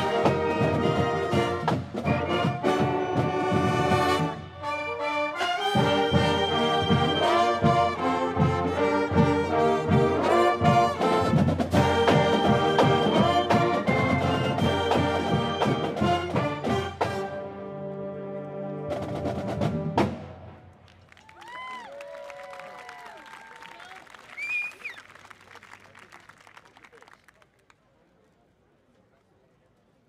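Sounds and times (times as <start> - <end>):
brass and woodwinds playing: 0.0 - 20.0.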